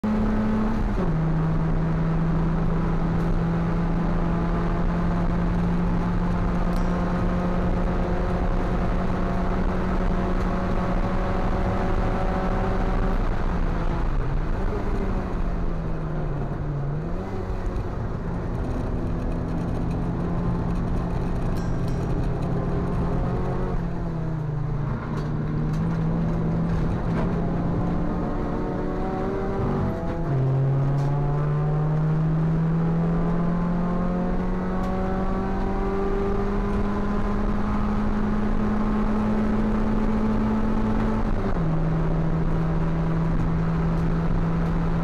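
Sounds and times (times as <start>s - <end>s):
race car engine at high revs: 0.0s - 45.0s.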